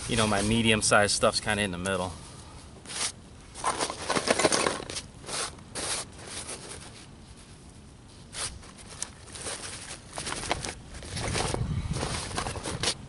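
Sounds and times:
dry bark fibers rustling and crackling: 4.9s - 13.0s.

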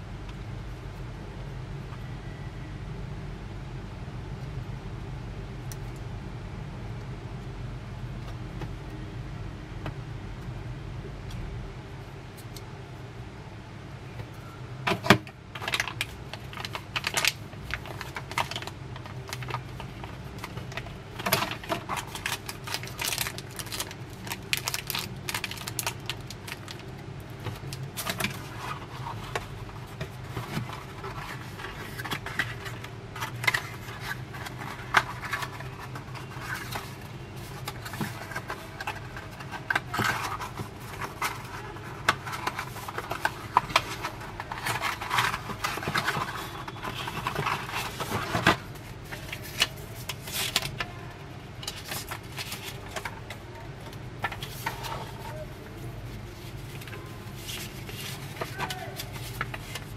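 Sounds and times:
cardboard and plastic packaging rustling: 14.8s - 59.9s.

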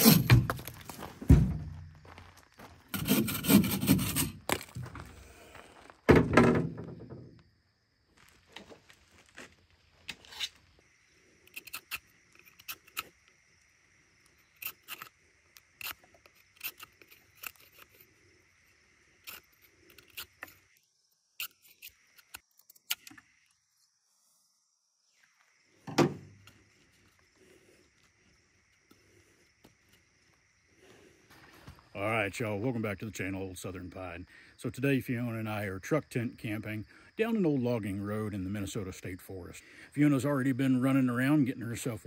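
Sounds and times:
thump: 1.2s - 1.8s, 6.1s - 7.3s, 25.8s - 26.3s
knife shaving wood: 3.0s - 4.3s, 14.3s - 18.3s, 19.1s - 20.7s.

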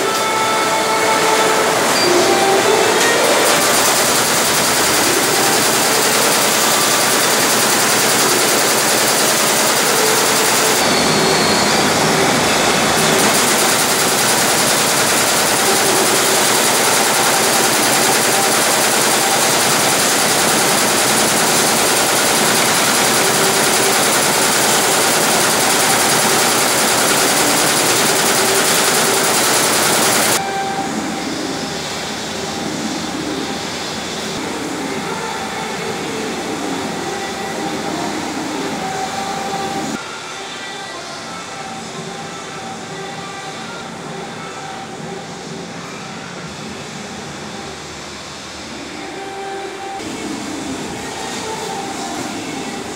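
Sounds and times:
embroidery machine stitching: 3.0s - 10.9s, 12.9s - 30.4s.

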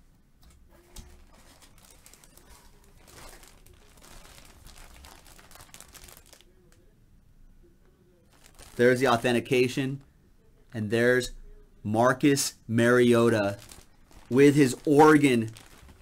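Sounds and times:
plastic bag crinkling: 0.8s - 6.6s, 8.3s - 9.6s, 13.0s - 16.0s.

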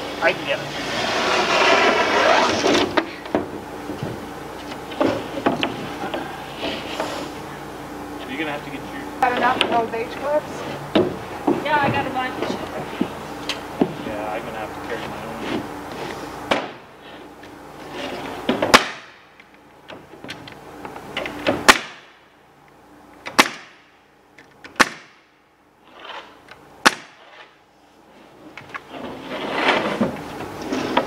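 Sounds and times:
nail gun shots: 18.7s - 19.2s, 21.6s - 22.1s, 23.3s - 23.8s, 24.7s - 25.2s, 26.8s - 27.2s.

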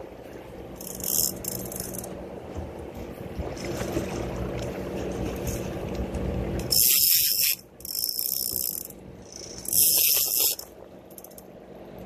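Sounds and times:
fishing reel ratchet buzzing: 0.8s - 2.1s, 6.6s - 11.5s.

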